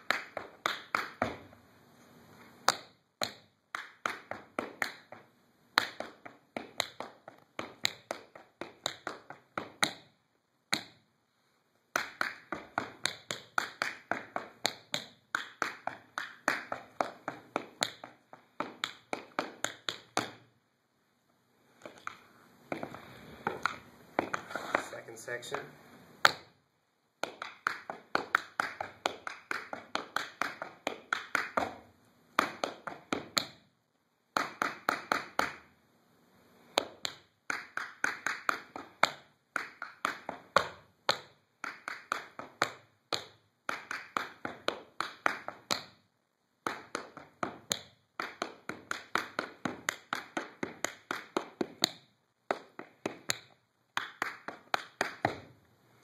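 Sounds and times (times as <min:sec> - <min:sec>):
tap shoes on wooden floor: 0:21.8 - 0:24.9.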